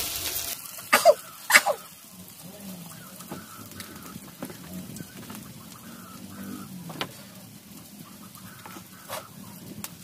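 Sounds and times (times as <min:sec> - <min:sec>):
onions sizzling in oil: 0:00.0 - 0:10.0
hen clucking: 0:02.8 - 0:07.3, 0:08.0 - 0:09.6.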